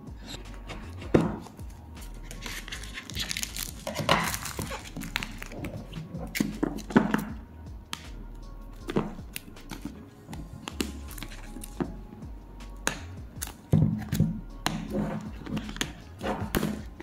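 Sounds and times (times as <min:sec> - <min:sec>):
cardboard and paper rustling: 0:02.2 - 0:06.9.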